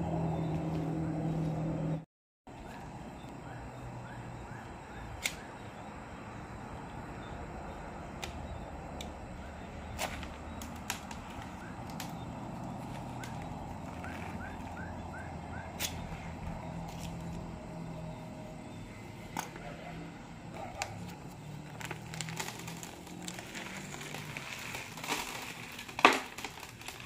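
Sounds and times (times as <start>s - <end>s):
box cutter and plastic bag clicks: 21.8s - 27.0s.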